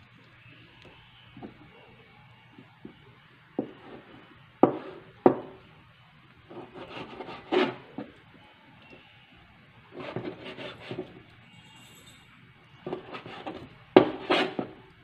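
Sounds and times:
knife scraping cutting board: 0:06.5 - 0:08.1, 0:10.0 - 0:12.2, 0:12.8 - 0:14.8.

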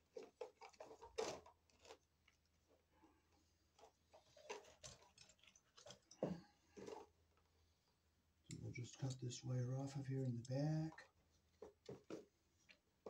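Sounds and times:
tools and cable clicking rustling: 0:00.0 - 0:02.4, 0:03.7 - 0:07.1.

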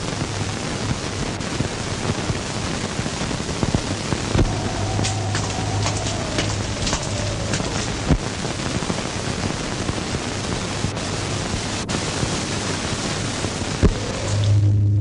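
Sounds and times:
steady hissy rushing noise: 0:00.0 - 0:14.7
steady low hum: 0:03.6 - 0:15.0.

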